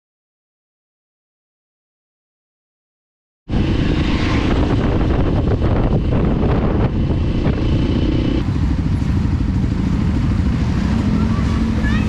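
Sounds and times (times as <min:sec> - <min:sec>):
motorcycle engine low rumble: 0:03.5 - 0:12.0.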